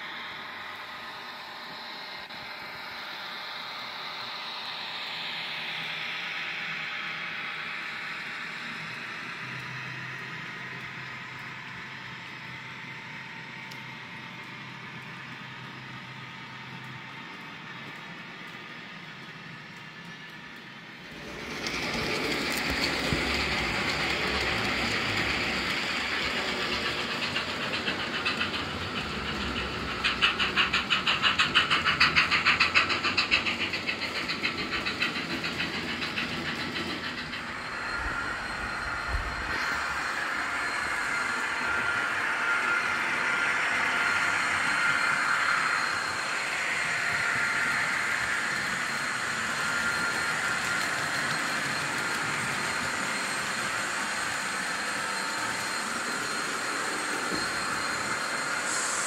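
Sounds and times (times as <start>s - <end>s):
model train wheels rumbling on rails: 0.0s - 59.0s
rattle of clicks over rail joints: 16.7s - 38.2s
thin steady whine: 19.0s - 59.0s.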